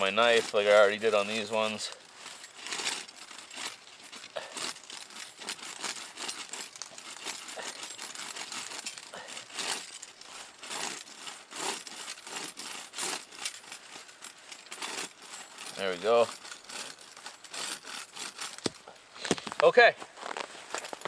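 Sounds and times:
saw rasping through branch: 0:00.0 - 0:19.2.

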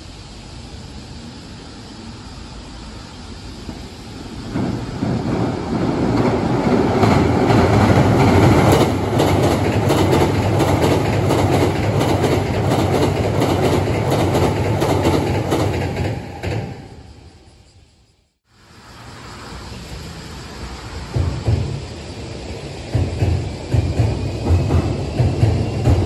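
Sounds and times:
electric train passing: 0:00.0 - 0:26.0
wheels clattering over rail joints: 0:03.6 - 0:16.8.

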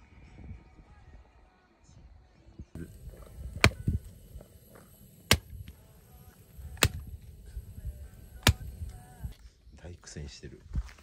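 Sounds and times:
axe chopping wood: 0:03.5 - 0:04.0, 0:05.2 - 0:05.6, 0:06.7 - 0:07.1, 0:08.4 - 0:08.7.

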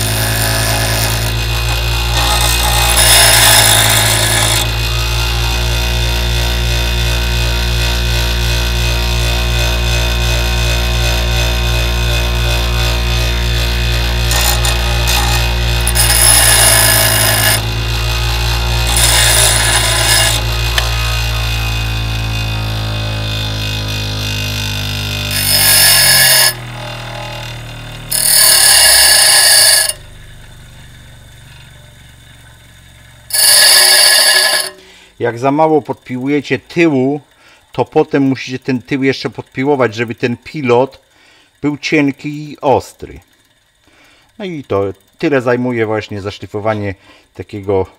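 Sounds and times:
gritty grinding hiss: 0:00.0 - 0:22.0, 0:23.6 - 0:47.9
bench grinder motor humming: 0:00.0 - 0:35.2.

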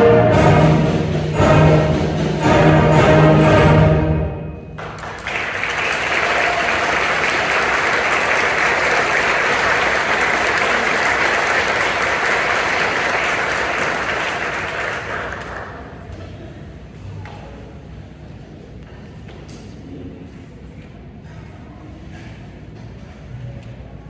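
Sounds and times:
audience applauding: 0:04.8 - 0:16.1.

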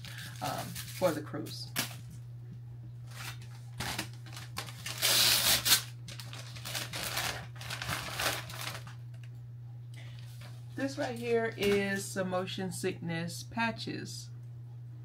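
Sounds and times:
paper mailer tearing and crumpling: 0:00.0 - 0:02.1, 0:03.1 - 0:09.2.

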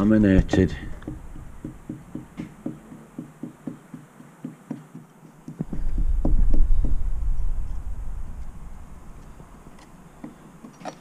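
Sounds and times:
low rumble: 0:05.6 - 0:10.0.

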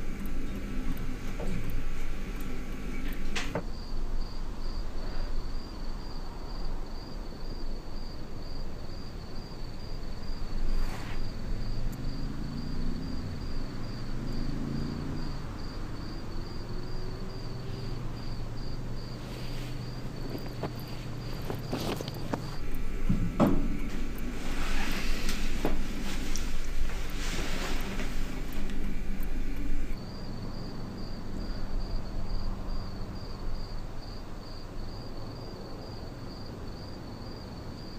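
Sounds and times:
cricket chirping: 0:00.0 - 0:37.9
low hum gliding in pitch: 0:20.0 - 0:30.0.

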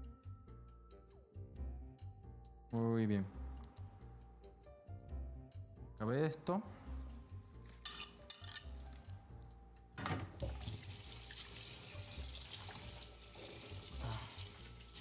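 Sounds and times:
faucet water running into sink: 0:10.3 - 0:15.0.

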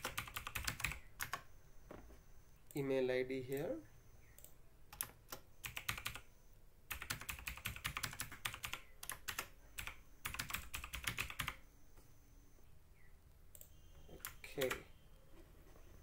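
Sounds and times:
computer keyboard typing: 0:00.0 - 0:01.5, 0:04.4 - 0:06.3, 0:06.9 - 0:11.6, 0:13.6 - 0:14.9.

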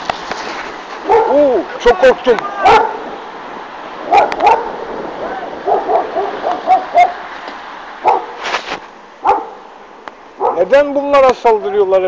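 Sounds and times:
dog barking: 0:01.0 - 0:01.4, 0:02.6 - 0:03.1, 0:04.0 - 0:04.8, 0:05.6 - 0:07.3, 0:08.0 - 0:08.4, 0:09.2 - 0:09.7, 0:10.4 - 0:10.7.

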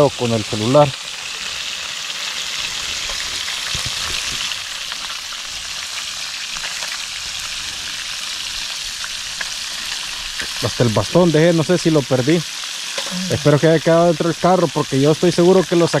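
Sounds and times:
fish frying in oil sizzle: 0:00.0 - 0:16.0.

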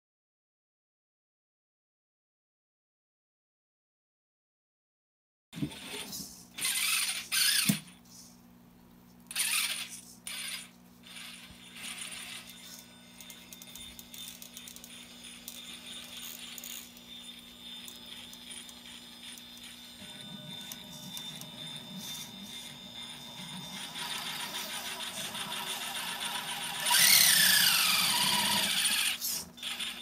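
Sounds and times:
steady low hum: 0:05.6 - 0:30.0
toy car gears whirring: 0:05.7 - 0:07.9, 0:09.3 - 0:30.0
fast mechanical ticking: 0:22.6 - 0:30.0.

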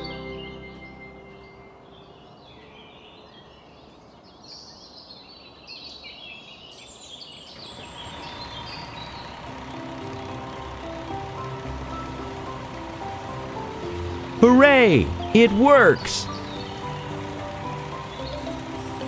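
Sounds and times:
whirring hiss with held tone: 0:07.6 - 0:19.0
cartoon birds chirping: 0:12.0 - 0:19.0.

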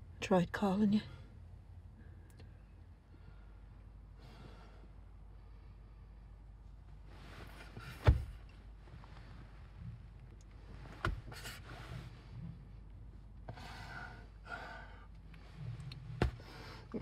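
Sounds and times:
man breathing and sighing: 0:13.4 - 0:17.0.

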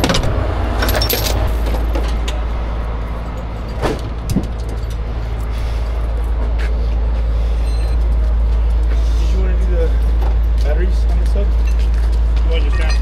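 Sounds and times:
steel chains clinking: 0:00.8 - 0:02.4, 0:11.6 - 0:13.0.

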